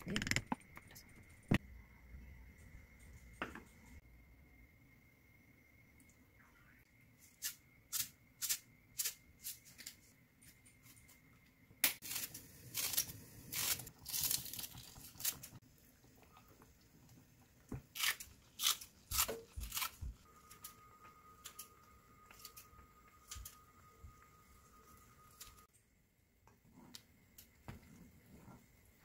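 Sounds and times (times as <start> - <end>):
scissors snipping onion stalks: 18.0 - 20.1.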